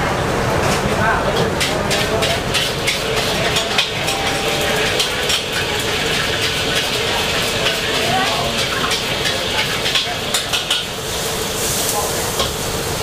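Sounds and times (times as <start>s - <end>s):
frying hiss: 4.1s - 13.0s.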